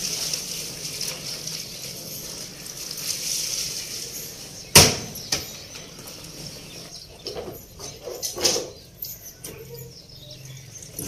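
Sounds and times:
steady high hiss: 0.0s - 6.9s
knocks in washing machine: 4.8s - 5.5s.

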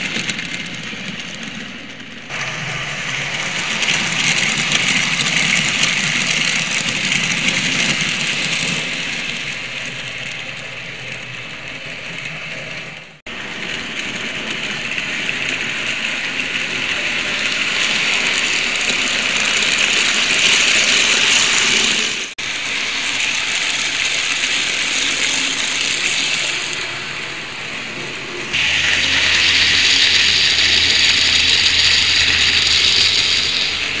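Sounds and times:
model train wheels clicking on rails: 0.0s - 34.0s
low hum: 27.3s - 34.0s.

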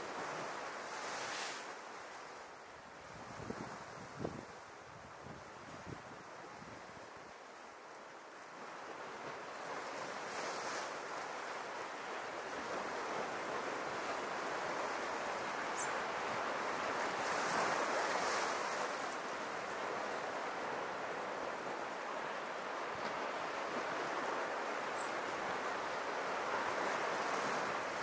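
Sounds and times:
sea waves on rocky shore: 9.1s - 28.0s.

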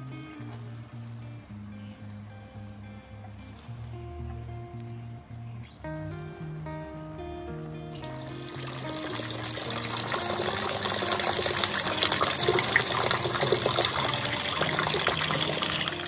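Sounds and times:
drips and splashes: 8.0s - 16.0s
heavy rain falling: 8.0s - 16.0s.

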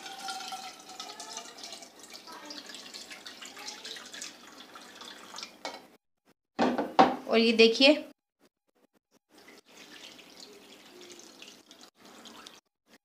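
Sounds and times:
water pouring and splashing: 0.0s - 5.7s, 9.3s - 13.0s.

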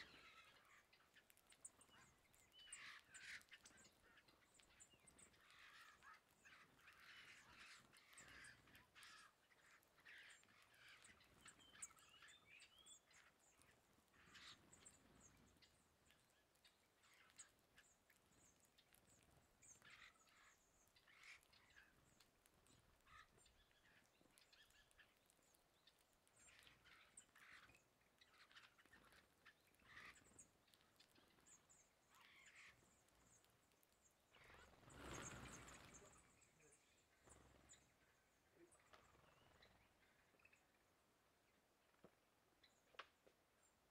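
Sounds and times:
high thin songbird calls: 34.3s - 40.7s
rush of wingbeats: 34.4s - 37.8s.

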